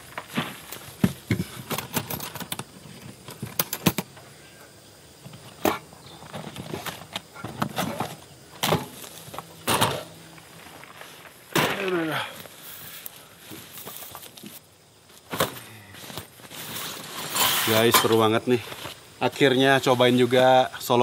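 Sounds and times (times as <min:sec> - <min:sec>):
items knocking and clattering: 0:00.1 - 0:04.1, 0:05.2 - 0:10.1.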